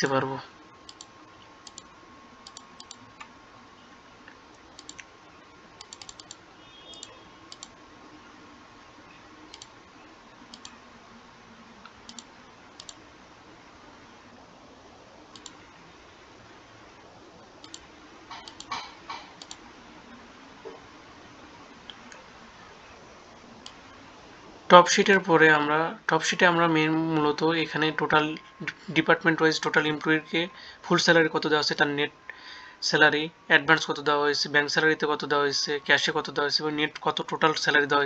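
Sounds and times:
faint steady hum: 0:00.0 - 0:38.0
computer mouse clicks: 0:00.8 - 0:03.3, 0:04.3 - 0:05.1, 0:05.8 - 0:07.8, 0:09.5 - 0:09.8, 0:10.5 - 0:10.8, 0:11.8 - 0:13.0, 0:15.3 - 0:15.6, 0:17.6 - 0:19.6, 0:23.6 - 0:23.8.

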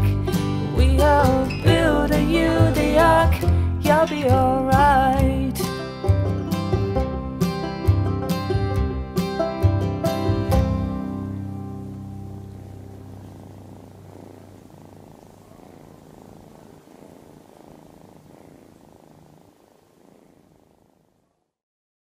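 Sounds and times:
kitten purring: 0:00.0 - 0:05.2, 0:11.2 - 0:21.6.

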